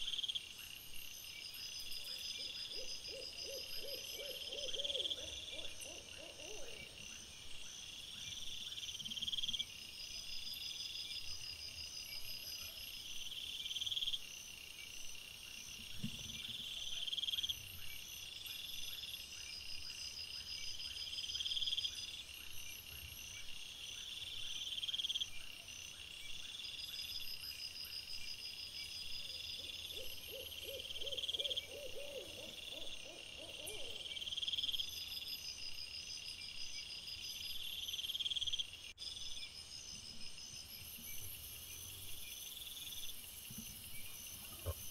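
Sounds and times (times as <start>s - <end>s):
crickets and insects trilling: 28.5s - 44.9s.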